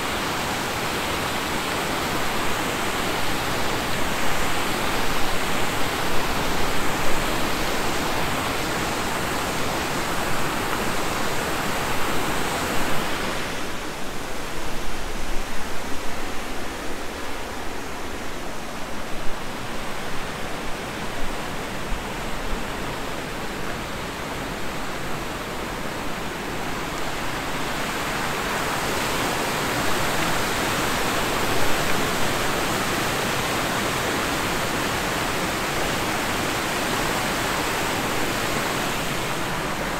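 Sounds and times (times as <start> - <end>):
river rushing over weir: 0.0 - 39.9.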